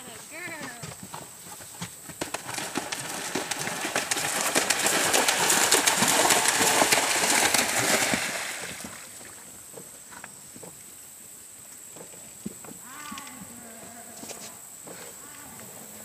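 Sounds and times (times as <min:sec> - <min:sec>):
hooves splashing in water: 0:00.2 - 0:10.9.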